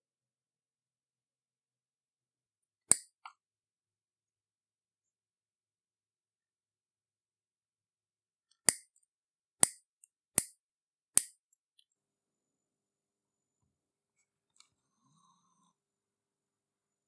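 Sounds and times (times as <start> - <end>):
pliers snipping wire: 2.9 - 3.1.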